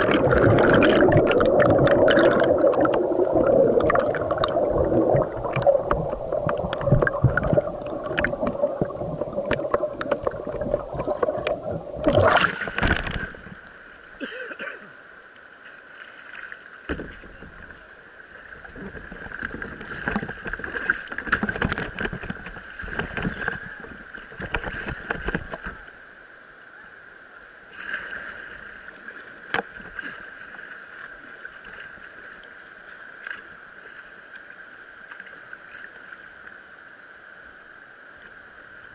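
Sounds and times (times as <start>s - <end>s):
loud splash: 0.0s - 11.4s, 12.0s - 13.4s
water splashing against camera: 0.0s - 14.1s, 18.6s - 25.9s
muffled underwater churning: 0.0s - 14.6s, 16.9s - 25.9s
rushing river water: 0.0s - 38.9s.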